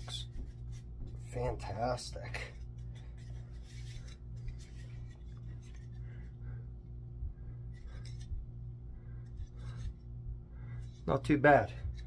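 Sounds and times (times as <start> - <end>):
steady low hum: 0.0 - 12.0
hands rubbing wooden handle: 2.5 - 6.0.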